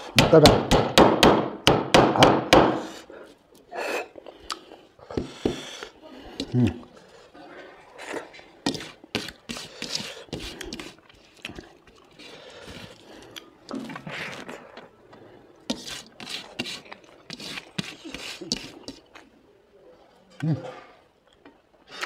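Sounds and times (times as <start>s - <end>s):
person chewing meat: 3.3s - 7.1s, 7.9s - 15.3s.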